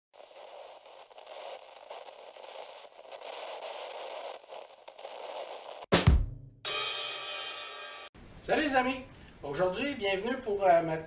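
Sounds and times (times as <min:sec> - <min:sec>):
hissing crackling static: 0:00.1 - 0:05.9.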